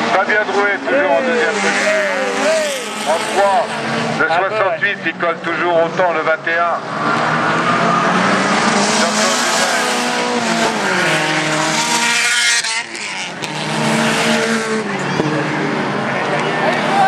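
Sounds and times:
race car engine revving: 0:00.0 - 0:17.0.

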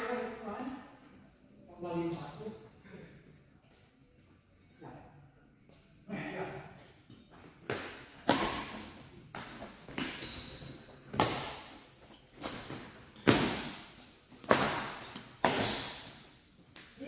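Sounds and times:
shoe squeaks on court floor: 0:01.9 - 0:02.8, 0:03.6 - 0:04.2, 0:09.9 - 0:16.1.

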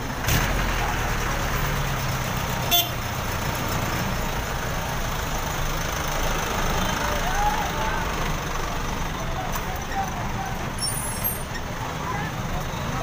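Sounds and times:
busy street noise: 0:00.0 - 0:13.0
vehicle engine running: 0:00.0 - 0:13.0
car horn toot: 0:02.7 - 0:03.0.

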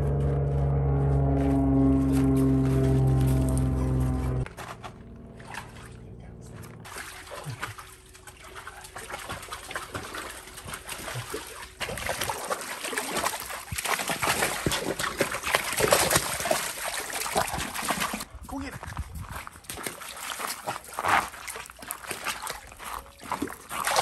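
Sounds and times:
dog splashing in water: 0:04.6 - 0:18.3, 0:19.2 - 0:24.0.

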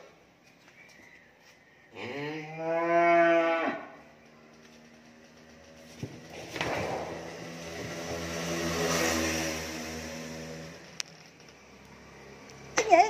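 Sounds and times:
cow mooing: 0:01.9 - 0:04.0.

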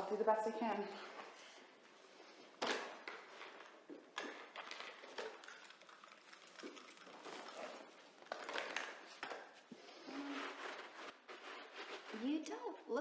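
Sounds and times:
scrubbing a rug by hand: 0:10.1 - 0:12.4.

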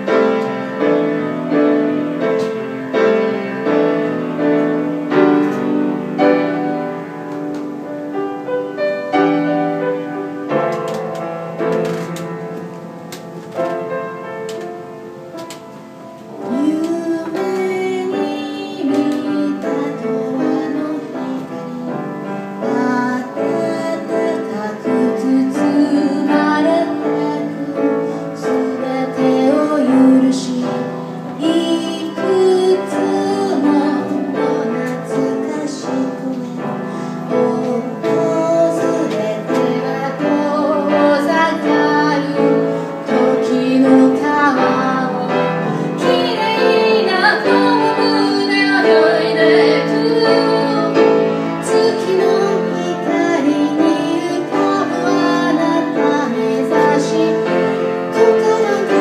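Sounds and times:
grand piano: 0:00.0 - 0:59.0
woman singing: 0:16.2 - 0:59.0.

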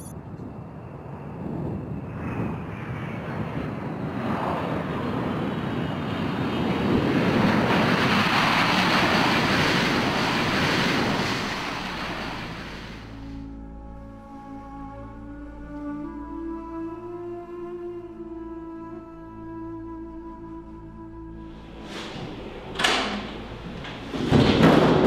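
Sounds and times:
jet engines rushing: 0:00.0 - 0:13.4, 0:21.5 - 0:25.0.

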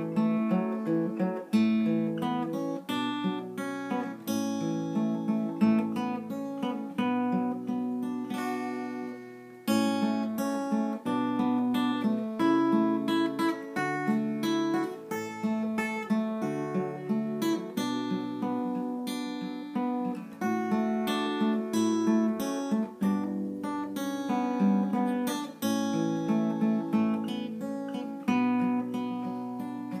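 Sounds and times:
fingerstyle acoustic guitar melody: 0:00.0 - 0:30.0.

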